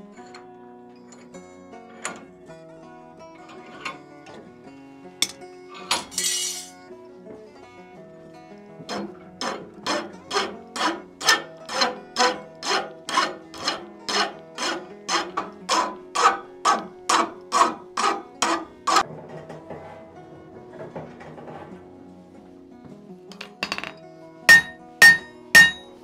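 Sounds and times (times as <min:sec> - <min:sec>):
file rasping on steel: 0:08.9 - 0:19.0, 0:24.5 - 0:26.0.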